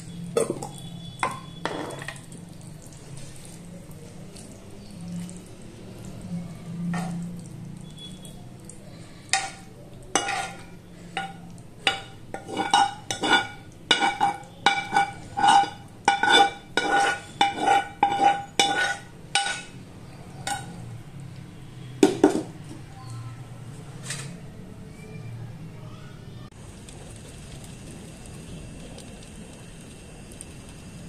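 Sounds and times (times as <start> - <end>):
metal spoon clinking on pan: 0.4 - 2.3, 9.3 - 19.8, 20.4 - 20.9.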